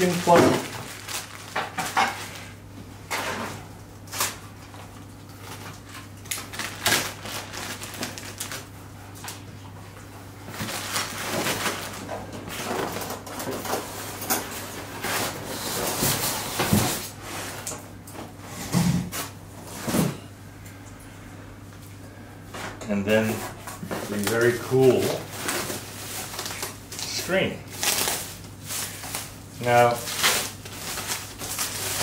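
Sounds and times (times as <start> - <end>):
plastic bags crinkling: 0.0 - 2.6, 4.9 - 8.8, 10.5 - 13.7, 24.0 - 32.0.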